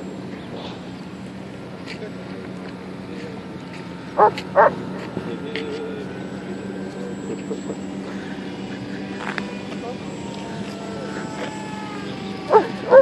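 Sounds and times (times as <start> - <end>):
dog barking: 4.2 - 4.8, 12.5 - 13.0.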